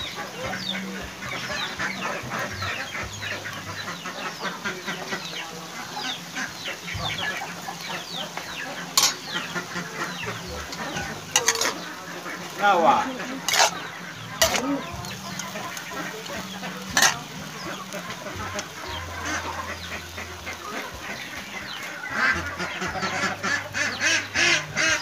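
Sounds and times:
chicks cheeping: 0.0s - 25.0s
metal spatula clacking on wok: 8.9s - 9.3s, 10.6s - 11.9s, 13.4s - 13.8s, 14.4s - 17.6s.

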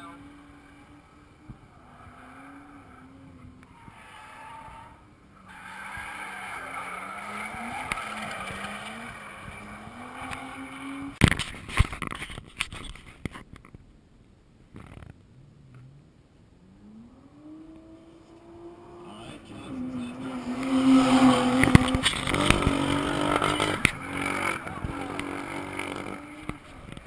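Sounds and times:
car engine revving: 0.0s - 11.2s, 16.6s - 27.0s
tyre noise: 17.7s - 27.0s.

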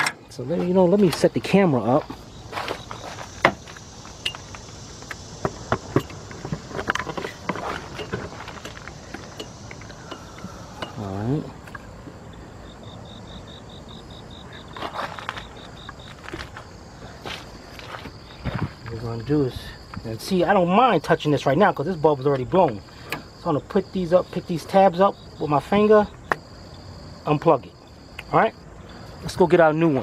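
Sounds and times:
high fast ticking chirp: 7.2s - 16.2s.

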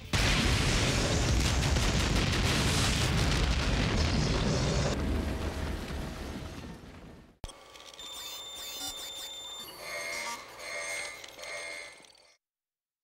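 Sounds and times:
explosion roar with crackling: 0.1s - 7.4s.

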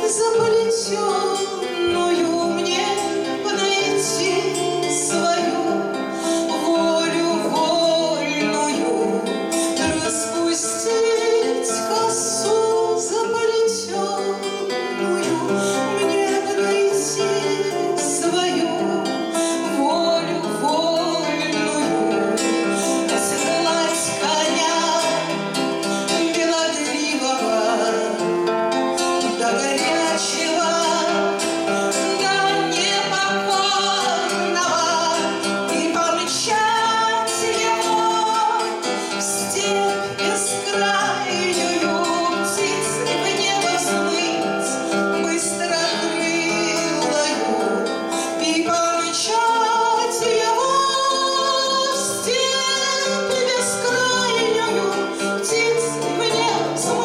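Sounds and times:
strummed classical guitar: 0.0s - 57.0s
woman singing: 0.0s - 57.0s.

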